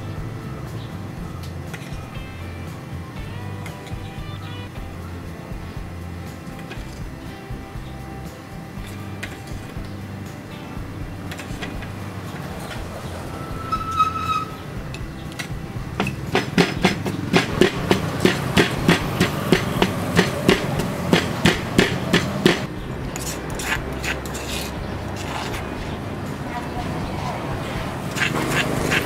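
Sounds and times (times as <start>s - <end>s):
pestle pounding in stone mortar: 15.6s - 25.8s, 27.8s - 29.0s.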